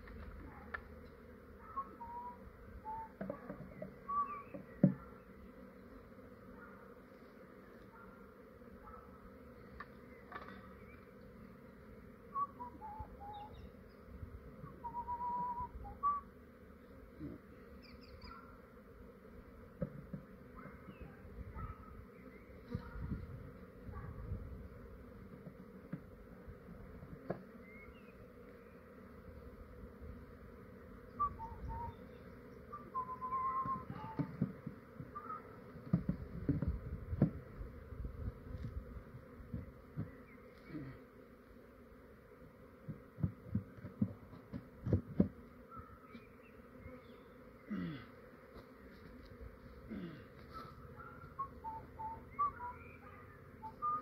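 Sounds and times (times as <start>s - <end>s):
bees buzzing: 0.0s - 54.0s
bird chirping: 17.8s - 18.4s, 51.1s - 54.0s.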